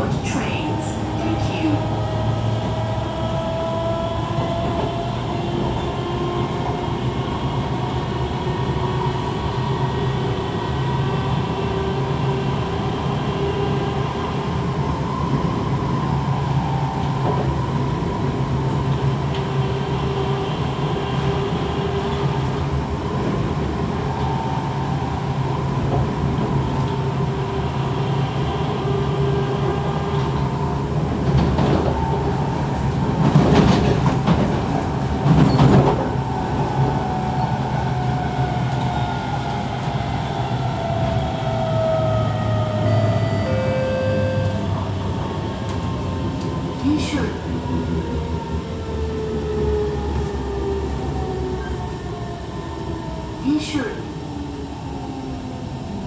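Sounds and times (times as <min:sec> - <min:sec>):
train wheels rumbling on rails: 0:00.0 - 0:56.0
traction motor whine: 0:41.4 - 0:45.5.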